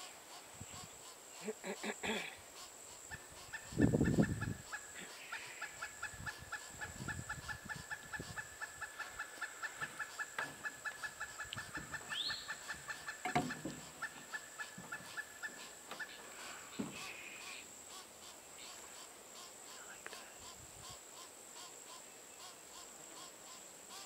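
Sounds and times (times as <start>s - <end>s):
high insect buzz: 0.0s - 24.0s
woodpecker clucking calls: 0.0s - 24.0s
low thump: 13.3s - 13.9s.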